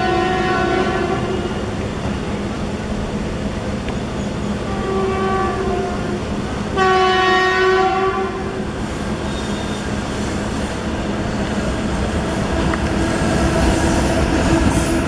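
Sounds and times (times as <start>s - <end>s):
locomotive horn blasts: 0.0s - 1.7s, 4.7s - 6.2s, 6.8s - 8.6s
train rumble: 0.0s - 15.0s.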